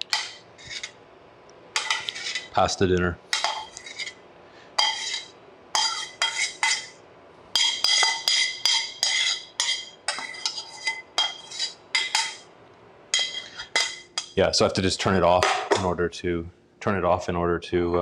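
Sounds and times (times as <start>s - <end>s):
metal tongs clanking on steel pan: 0.1s - 1.0s, 3.3s - 4.2s, 4.8s - 12.5s, 13.1s - 14.4s.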